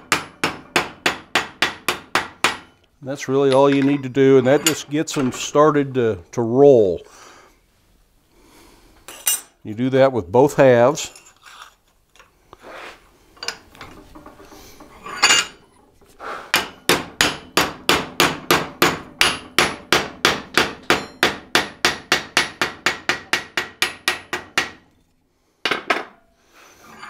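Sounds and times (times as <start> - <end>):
hammer striking steel: 0.0 - 2.8, 16.6 - 24.8
metal clink: 3.4 - 5.4, 15.0 - 15.6, 20.9 - 21.2.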